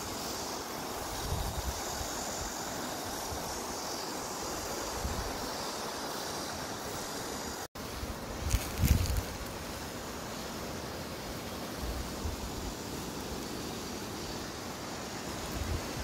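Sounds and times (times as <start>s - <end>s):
mountain stream rushing: 0.0s - 16.0s
wind buffeting microphone: 8.4s - 9.5s.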